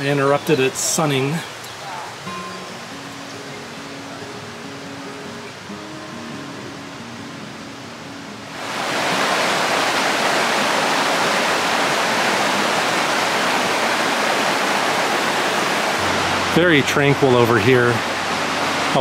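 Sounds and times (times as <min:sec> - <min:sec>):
soft guitar music: 0:00.0 - 0:10.0, 0:14.7 - 0:19.0
creek water rushing over boulders: 0:00.0 - 0:19.0.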